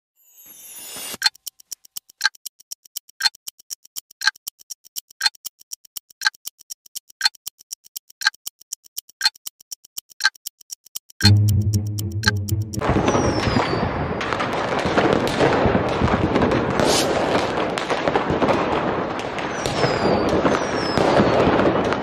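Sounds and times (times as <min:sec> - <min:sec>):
clock ticking: 0:01.2 - 0:12.9.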